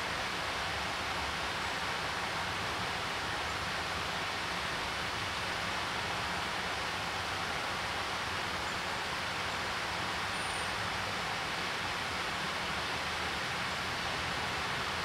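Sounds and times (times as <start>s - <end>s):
water rushing in stream: 0.0s - 15.0s.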